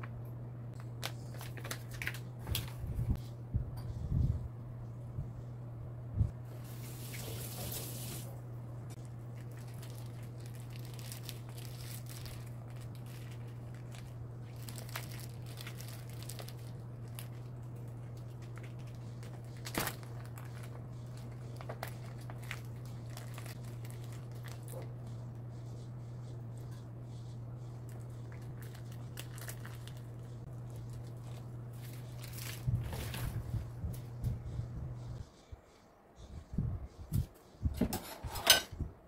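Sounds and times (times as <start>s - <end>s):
low hum: 0.0s - 39.0s
plastic pouch crinkling: 0.8s - 2.8s, 9.3s - 24.8s, 27.9s - 33.3s.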